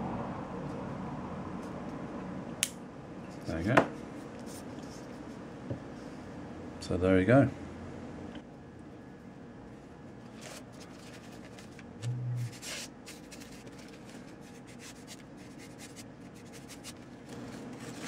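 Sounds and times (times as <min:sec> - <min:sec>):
short low hum: 0:11.7 - 0:13.9.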